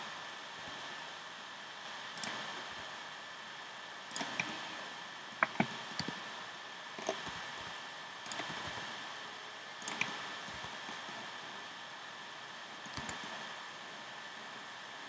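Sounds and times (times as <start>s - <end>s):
steady hiss: 0.0s - 15.0s
keyboard and mouse clicks: 2.2s - 2.5s, 4.1s - 4.6s, 5.4s - 6.2s, 7.0s - 8.9s, 9.8s - 11.2s, 12.9s - 13.4s.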